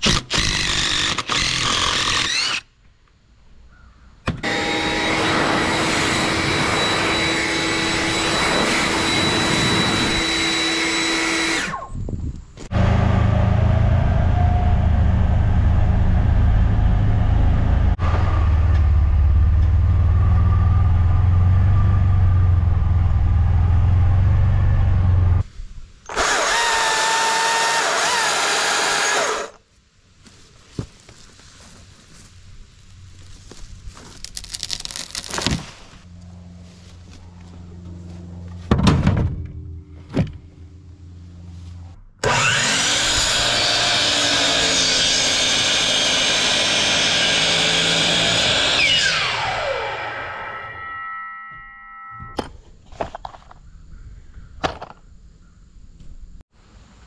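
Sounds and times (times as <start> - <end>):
cordless drill boring into log: 0.0 - 2.7, 4.4 - 11.9, 26.1 - 29.6, 42.2 - 50.3
loud machine wavering whine: 4.4 - 12.0, 42.2 - 52.4
machine whining: 4.4 - 12.0, 42.2 - 52.4
vehicle engine droning: 12.7 - 25.4, 36.0 - 42.2.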